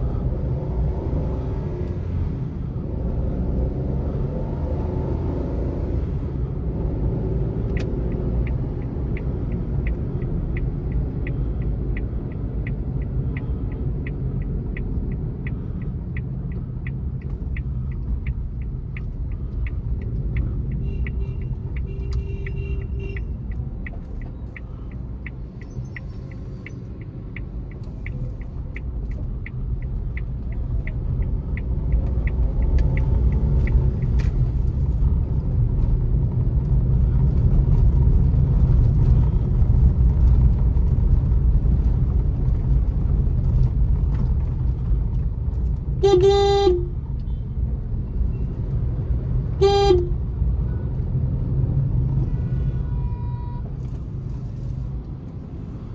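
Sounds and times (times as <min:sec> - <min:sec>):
engine and road rumble: 0:00.0 - 0:55.9
turn-signal relay ticking: 0:07.7 - 0:35.2
car horn honking: 0:20.8 - 0:23.3, 0:46.0 - 0:47.4, 0:49.5 - 0:50.2.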